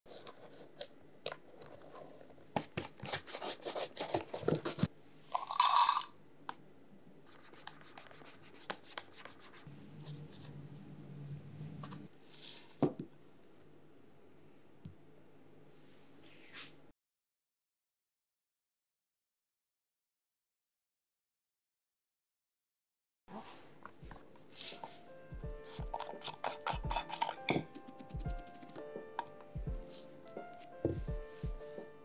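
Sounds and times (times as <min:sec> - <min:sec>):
shoelace rasping through eyelets: 0:25.6 - 0:28.9
metal tin lid scraping off: 0:25.9 - 0:27.8.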